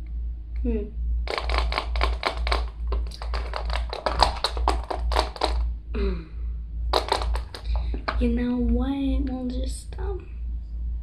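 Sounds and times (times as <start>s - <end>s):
steady low hum: 0.0s - 11.0s
small hard objects clattering: 1.3s - 5.6s, 6.9s - 8.2s.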